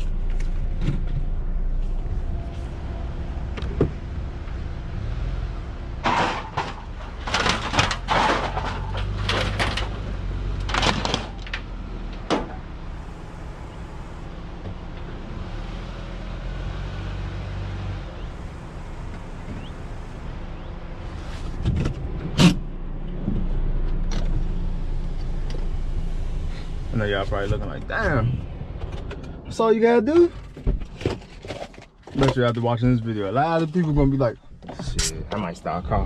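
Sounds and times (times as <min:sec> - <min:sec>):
low engine hum: 0:00.0 - 0:36.0
car door opening and shutting: 0:30.1 - 0:32.4.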